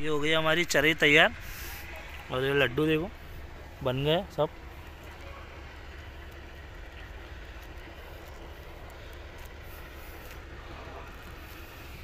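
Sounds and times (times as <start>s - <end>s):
light handling ticks: 3.2s - 12.0s.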